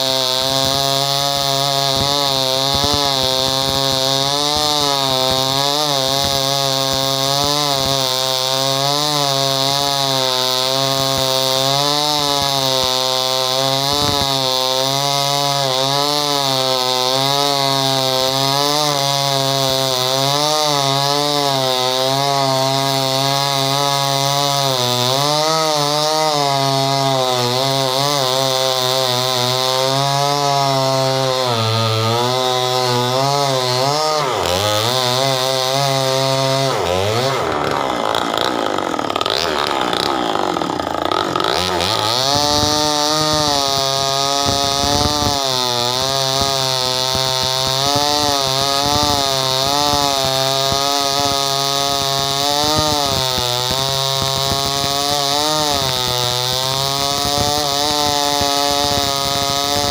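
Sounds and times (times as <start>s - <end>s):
chainsaw cutting log: 0.0s - 59.9s.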